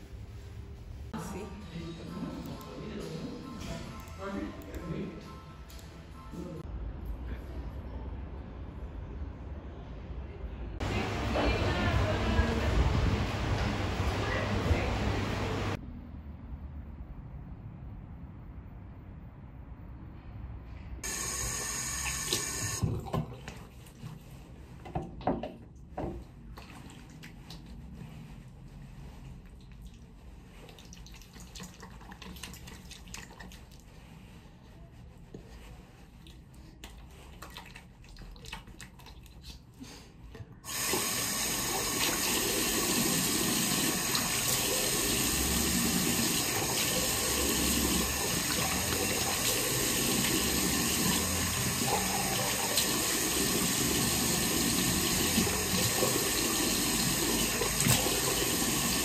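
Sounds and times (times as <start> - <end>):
water and handling sounds: 22.1 - 59.0.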